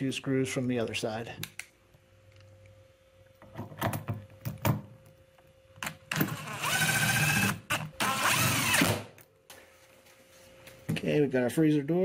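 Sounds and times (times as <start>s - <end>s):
cordless drill driving screws: 6.1s - 9.1s.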